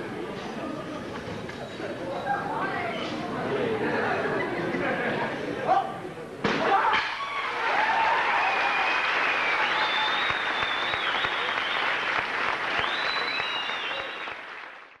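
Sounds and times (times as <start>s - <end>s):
audience applauding: 7.6s - 15.0s.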